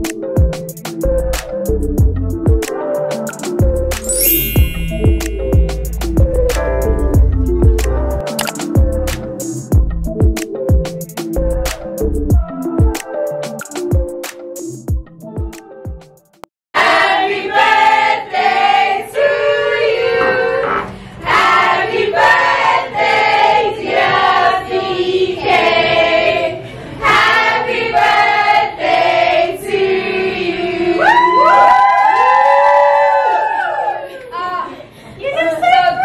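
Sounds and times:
group of people singing: 16.8s - 31.0s.

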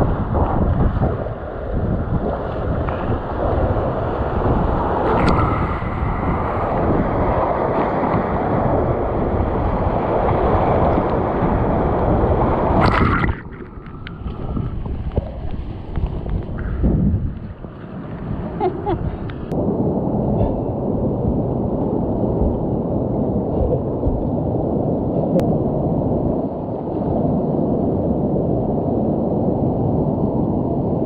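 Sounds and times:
wind buffeting microphone: 0.0s - 31.0s
paddle strokes splashing: 9.7s - 19.5s
sharp splash: 12.7s - 15.4s.

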